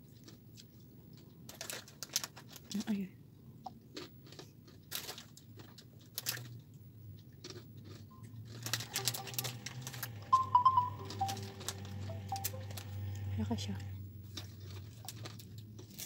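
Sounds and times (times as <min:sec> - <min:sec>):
phone ringtone melody: 0:08.8 - 0:13.3.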